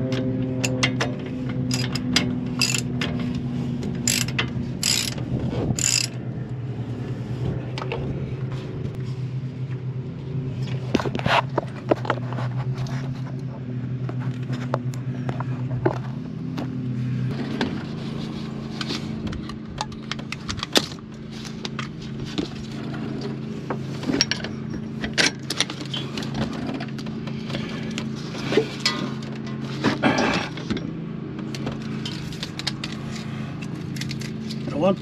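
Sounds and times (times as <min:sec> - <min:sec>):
steady low hum: 0:00.0 - 0:35.0
socket ratchet clicking: 0:02.6 - 0:02.9, 0:04.0 - 0:05.2, 0:05.8 - 0:06.2.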